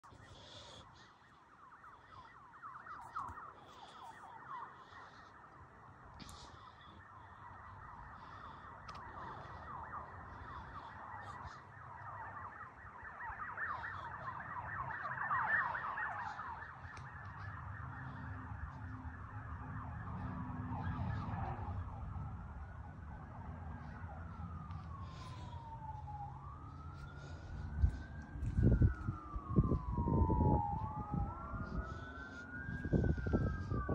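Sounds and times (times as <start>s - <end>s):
sirens yelping and wailing: 0.0s - 33.9s
low vehicle rumble: 4.1s - 33.9s.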